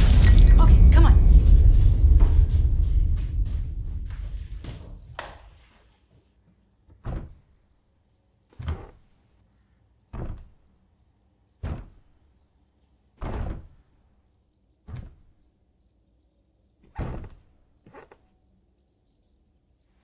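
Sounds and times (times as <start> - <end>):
pounding on wooden door: 7.0 - 7.5, 10.1 - 10.7, 11.6 - 12.2, 13.2 - 13.8.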